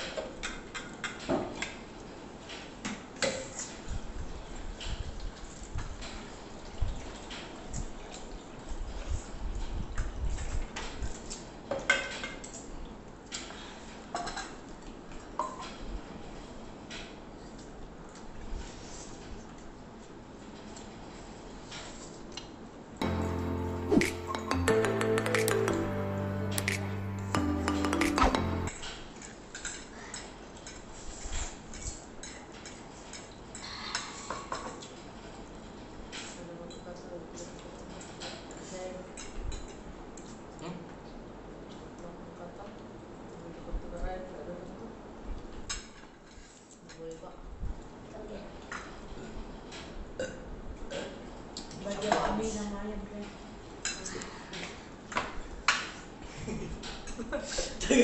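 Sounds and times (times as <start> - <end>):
cutlery clinking against plates: 14.2 - 14.6, 29.2 - 35.0.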